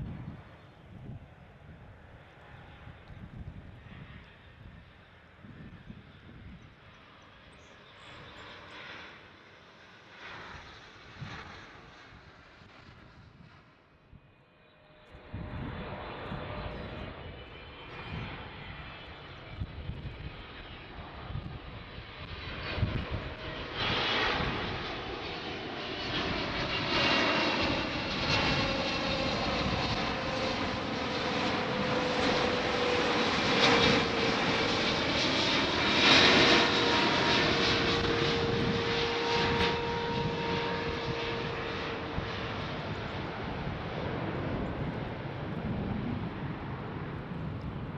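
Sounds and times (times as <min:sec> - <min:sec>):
jet engines roaring with fan whine: 0:00.0 - 0:47.9.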